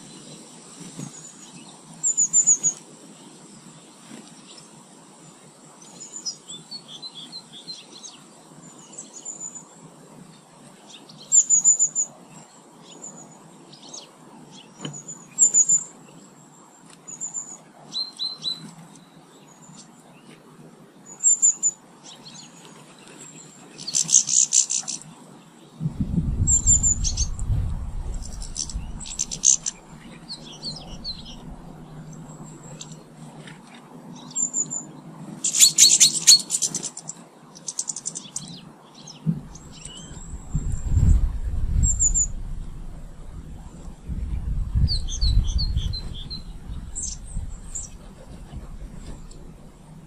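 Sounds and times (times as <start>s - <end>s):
small birds chirping: 0.0s - 20.4s, 21.0s - 50.0s
birds chattering rapidly: 23.8s - 25.2s, 26.0s - 33.1s, 34.2s - 50.0s
low rumble: 25.8s - 33.0s, 39.3s - 50.0s.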